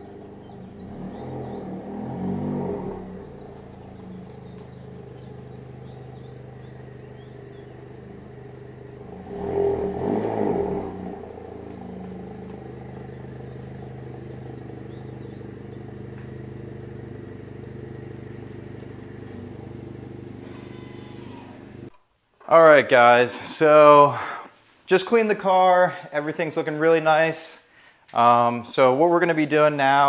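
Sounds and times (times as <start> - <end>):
car engine running: 0.0 - 21.9.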